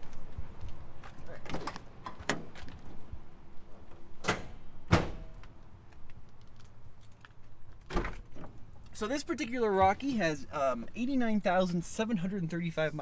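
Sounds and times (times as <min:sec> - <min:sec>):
car door clunk: 0:04.2 - 0:05.4.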